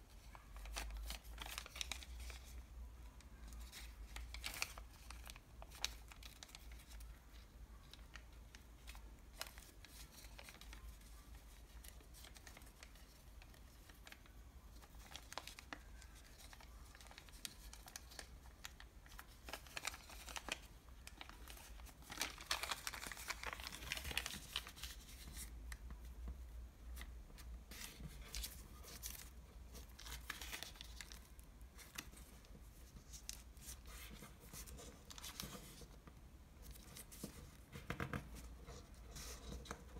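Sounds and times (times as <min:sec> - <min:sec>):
paper bag crinkling: 0:14.8 - 0:25.5.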